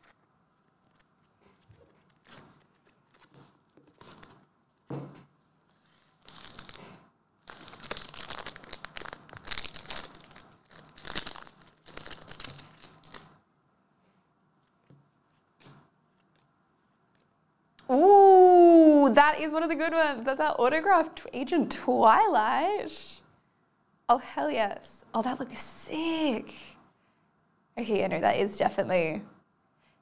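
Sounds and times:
foil pack tearing and crinkling: 6.2 - 13.4.

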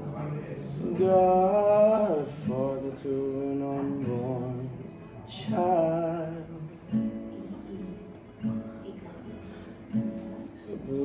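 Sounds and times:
strummed acoustic guitar: 0.0 - 11.0
man singing slow song: 0.6 - 6.8, 10.6 - 11.0.

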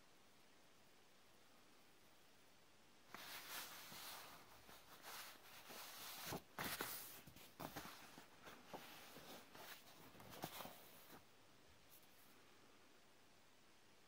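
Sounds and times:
paper rustling: 3.1 - 11.2.

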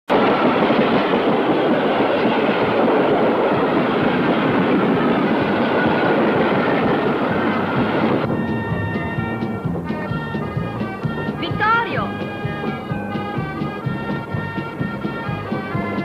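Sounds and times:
train wheels on rails: 0.1 - 16.0
music: 3.5 - 16.0.

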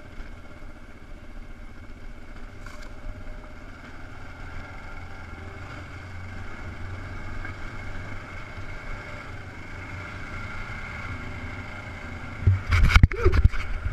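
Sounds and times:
motorcycle engine running: 0.0 - 13.9
wind noise on microphone: 12.4 - 13.9.

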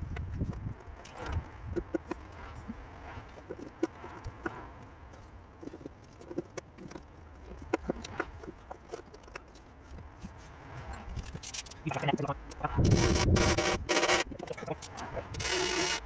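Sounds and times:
metal parts and hand tools clicking: 3.3 - 16.0.

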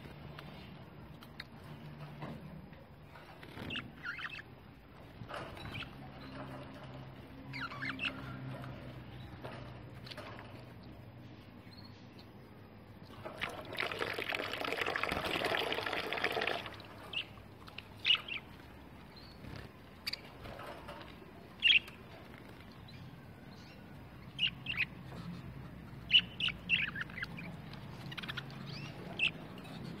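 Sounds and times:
water splashing: 13.2 - 17.3.

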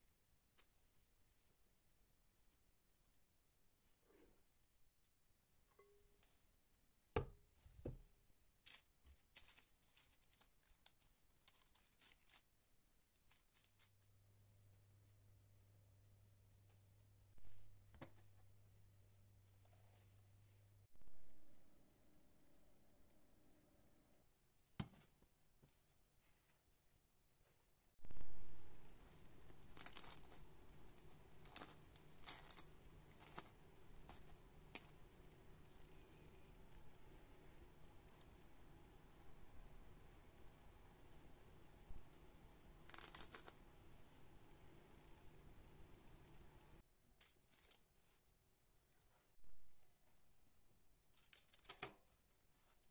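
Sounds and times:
rustling and scraping of kitchen things: 7.4 - 14.1, 19.1 - 20.7, 24.9 - 35.0, 47.1 - 49.4
low steady hum: 11.5 - 24.5, 28.0 - 46.8.

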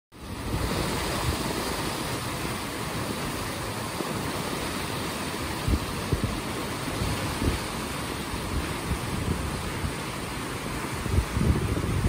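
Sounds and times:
river rushing: 0.2 - 12.0
wind buffeting microphone: 0.2 - 12.0.

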